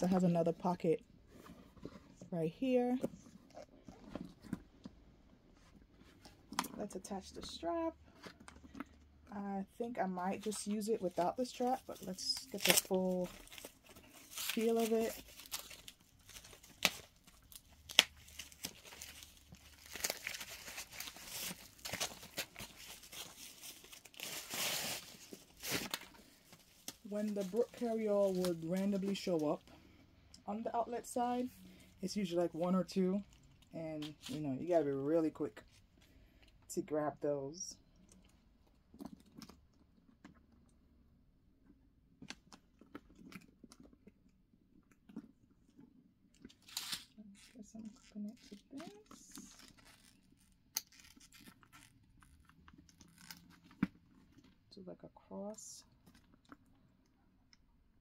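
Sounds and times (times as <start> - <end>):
clicks and rustles of handbag: 3.0 - 9.3, 38.0 - 40.7, 42.2 - 54.7
plastic wrapping crinkling: 10.0 - 29.8, 46.4 - 54.5.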